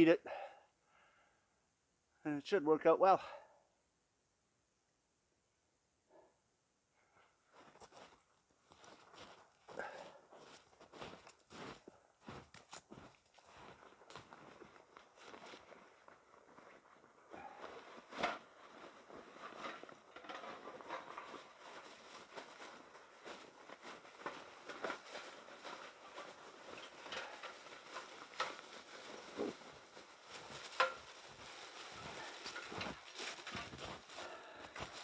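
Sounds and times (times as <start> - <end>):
footsteps in snow: 7.5 - 35.0
rummaging in backpack: 17.3 - 35.0.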